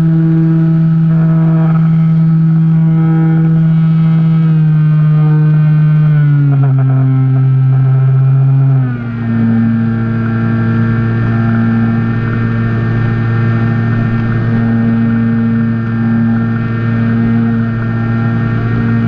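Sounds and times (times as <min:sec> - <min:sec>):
model plane motor buzzing: 0:00.0 - 0:19.0.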